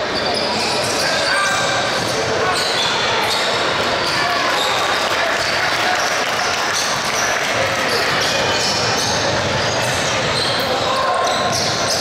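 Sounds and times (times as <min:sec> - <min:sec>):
basketball bouncing on court: 0:06.8 - 0:12.0.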